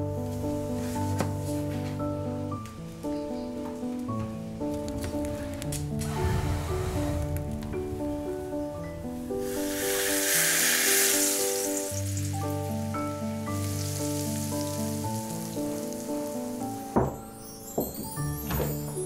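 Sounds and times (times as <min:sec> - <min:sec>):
background music: 0:00.0 - 0:19.0
hot oil sizzling: 0:09.4 - 0:17.0.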